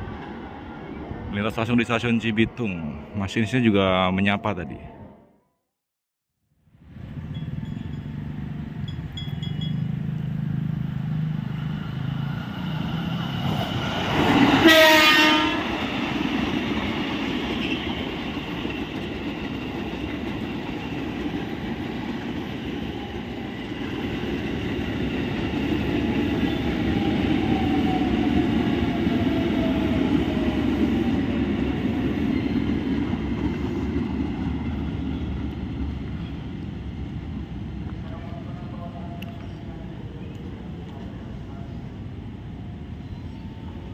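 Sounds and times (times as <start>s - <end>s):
train horn blast: 14.6s - 15.8s.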